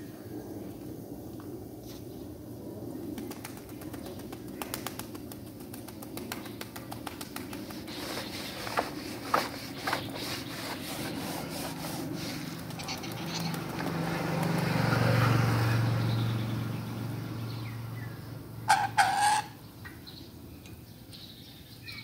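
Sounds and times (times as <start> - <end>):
bird calling softly: 12.2 - 13.9.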